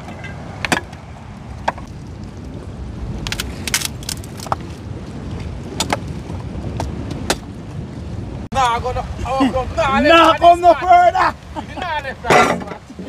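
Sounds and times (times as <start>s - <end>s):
sea: 0.0s - 13.0s
wind: 0.0s - 13.0s
sticks cracking while chopped: 3.2s - 4.6s.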